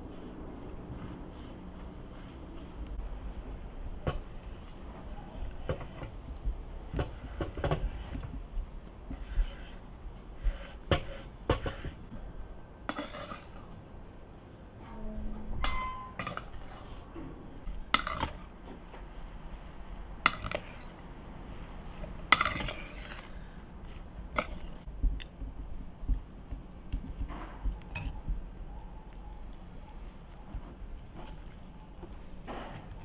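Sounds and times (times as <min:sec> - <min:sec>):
metal spoon stirring in a pan: 0:12.9 - 0:13.8, 0:20.2 - 0:21.0, 0:22.2 - 0:23.4.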